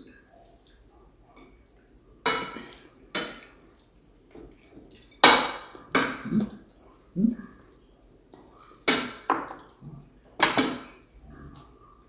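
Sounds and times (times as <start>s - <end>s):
cutlery clinking on plates: 1.4s - 3.5s, 10.4s - 11.0s.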